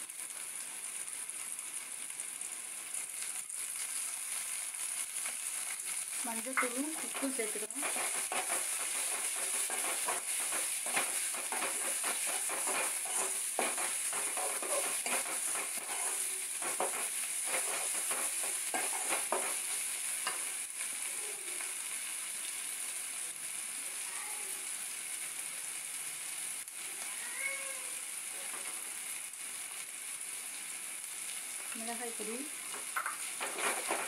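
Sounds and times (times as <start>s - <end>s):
onions sizzling in pan: 0.0s - 34.0s
metal spoon scraping pan: 6.5s - 20.5s, 33.2s - 34.0s.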